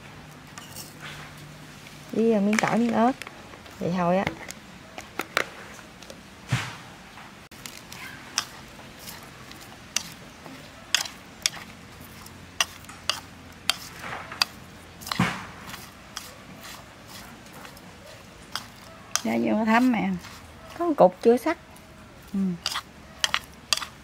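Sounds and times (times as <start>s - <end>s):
utensil scraping a bowl: 7.7s - 21.2s, 22.6s - 24.0s.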